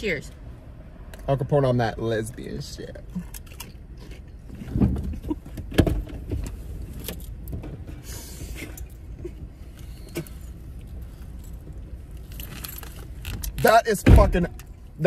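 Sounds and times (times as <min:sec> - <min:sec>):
car cabin rumble: 0:04.4 - 0:14.9.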